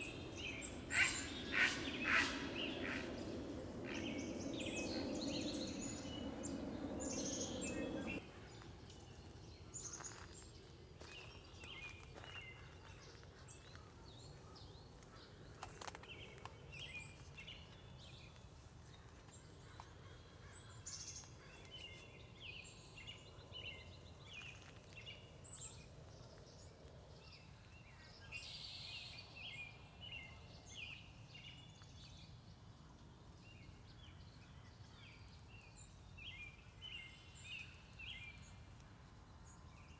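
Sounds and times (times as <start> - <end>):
birds singing and chirping: 0.0 - 8.2.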